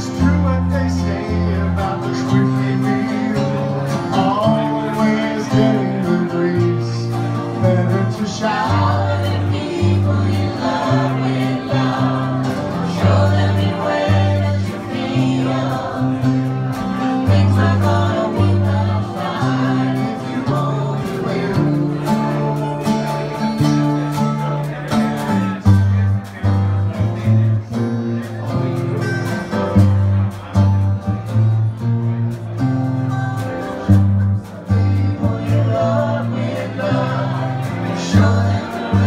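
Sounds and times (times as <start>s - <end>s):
group of voices singing: 0.0s - 26.0s, 33.4s - 39.0s
guitars playing: 0.0s - 39.0s
low bass notes: 0.0s - 39.0s.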